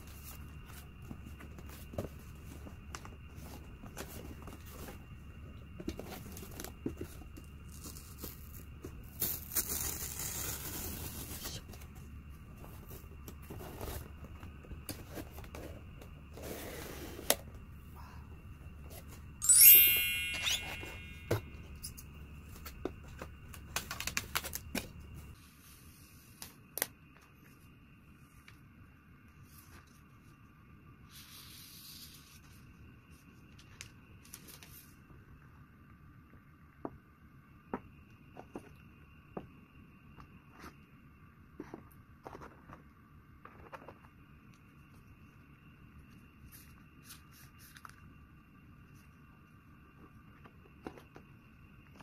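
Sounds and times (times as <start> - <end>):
sharp ringing clink: 19.4 - 21.4.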